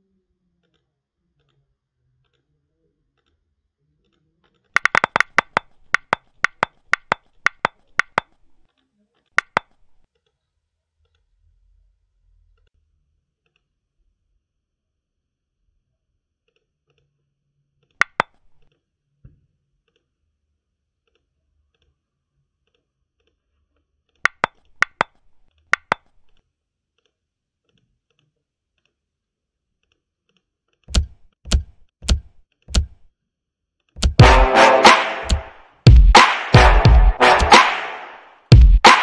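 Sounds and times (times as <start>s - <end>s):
computer mouse clicks: 4.8s - 8.6s, 9.4s - 10.0s, 18.0s - 18.6s, 24.3s - 26.4s, 30.9s - 33.1s.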